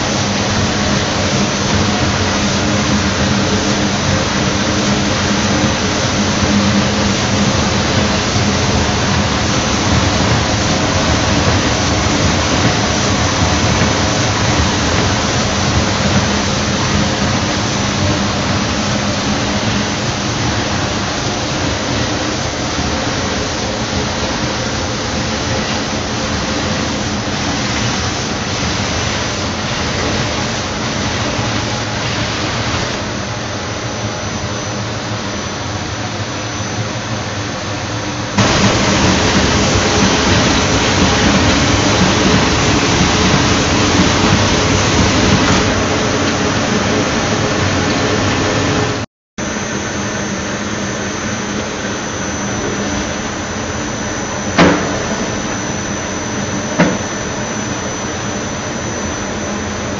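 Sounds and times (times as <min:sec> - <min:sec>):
machine rushing with low hum: 0:38.4 - 0:59.9.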